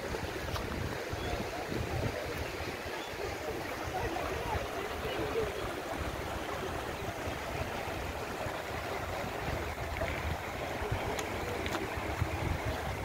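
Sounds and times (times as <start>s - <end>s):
wind rumble on microphone: 0.0s - 2.9s, 5.9s - 13.0s
stream running over rocks: 0.0s - 13.0s.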